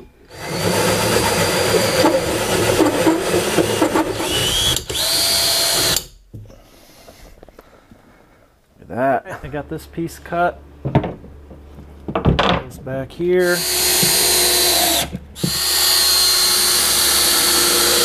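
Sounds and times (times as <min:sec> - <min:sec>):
hole saw grinding through plywood: 0:00.3 - 0:06.0, 0:13.4 - 0:18.0
drill whine: 0:00.3 - 0:06.1, 0:13.4 - 0:18.0.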